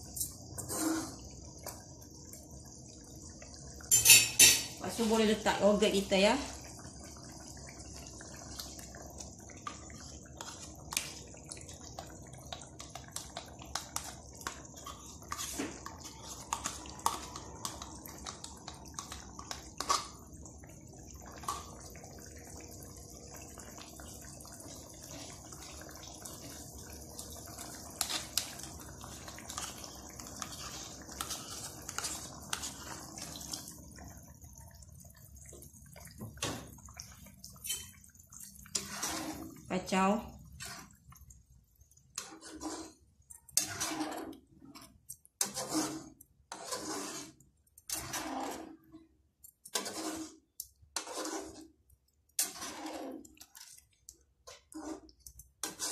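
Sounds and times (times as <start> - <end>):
curry bubbling pops: 1.2 - 45.5.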